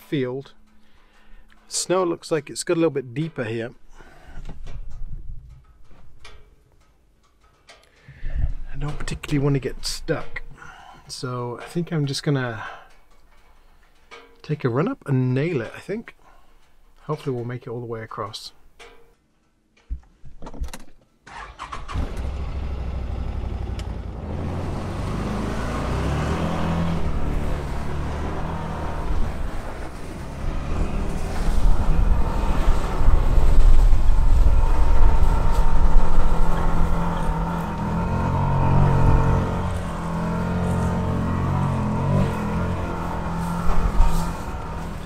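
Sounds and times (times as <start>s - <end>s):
off-road vehicle engine under throttle: 21.3s - 45.0s.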